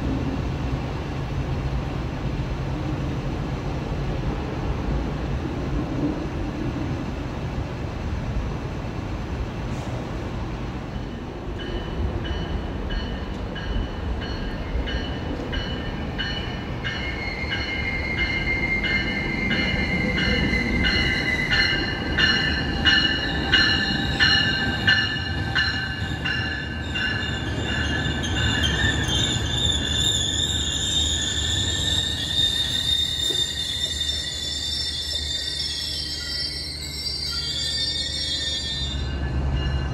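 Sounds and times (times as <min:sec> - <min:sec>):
train rumbling: 0:00.0 - 0:39.9
train bell ringing: 0:10.9 - 0:39.9
high wheel squeal: 0:17.0 - 0:39.9.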